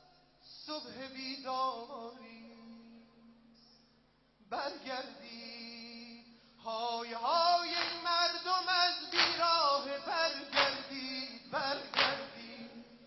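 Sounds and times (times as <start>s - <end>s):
people singing a lament: 6.7s - 13.0s
chest-beating slap: 7.8s - 8.0s, 9.2s - 9.5s, 10.6s - 10.8s, 12.0s - 12.3s.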